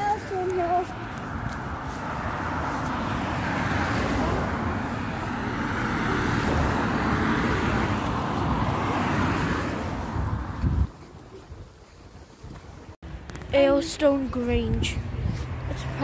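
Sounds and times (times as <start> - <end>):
car driving past: 1.7 - 10.6.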